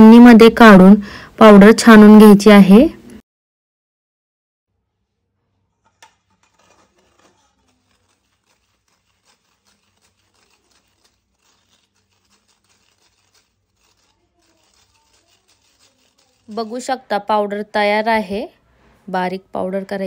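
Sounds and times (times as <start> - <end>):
spoon scraping metal sieve: 5.7 - 17.2.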